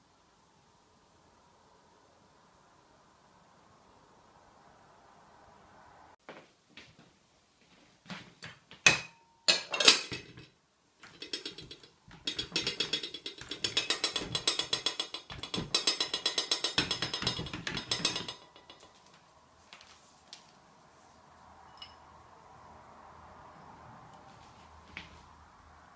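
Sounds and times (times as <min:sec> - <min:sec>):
ceramic dishes clunking on plastic: 0:08.9 - 0:19.0.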